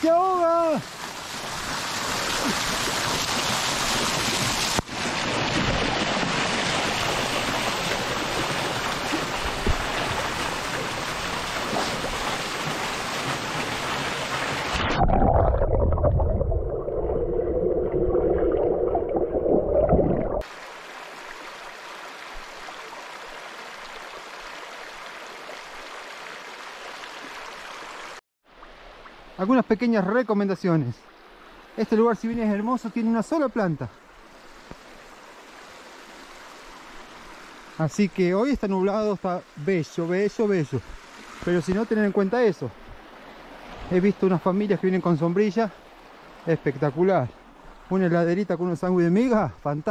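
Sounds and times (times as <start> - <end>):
waterfall pouring onto rock: 0.4 - 14.8
shallow stream over rock: 0.4 - 29.2, 31.1 - 49.3
muffled underwater bubbling: 14.8 - 20.4.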